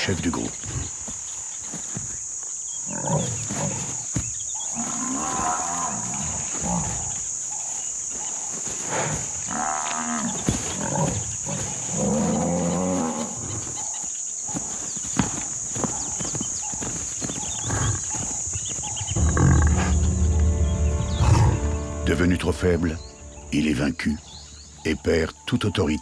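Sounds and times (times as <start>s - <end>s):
insects droning: 0.0s - 26.0s
buffalo bellowing and grunting: 2.8s - 7.7s, 8.8s - 13.9s, 17.4s - 20.0s.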